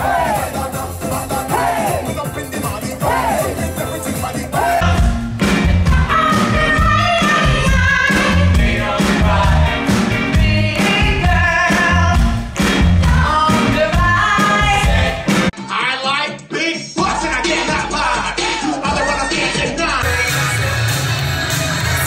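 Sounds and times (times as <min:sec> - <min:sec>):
men singing together: 0:00.0 - 0:05.0, 0:08.1 - 0:12.1
live band music: 0:00.0 - 0:22.0.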